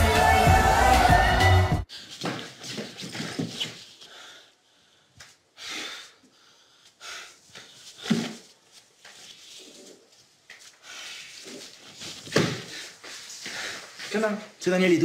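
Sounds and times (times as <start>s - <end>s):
man breathing: 4.0s - 8.5s, 10.8s - 11.8s, 12.6s - 14.1s
rustling and handling noises: 7.4s - 14.6s.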